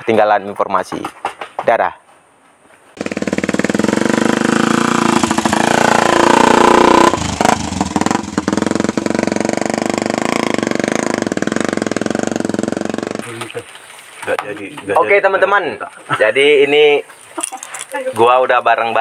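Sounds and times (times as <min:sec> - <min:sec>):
small motorcycle engine running: 0:03.0 - 0:13.2.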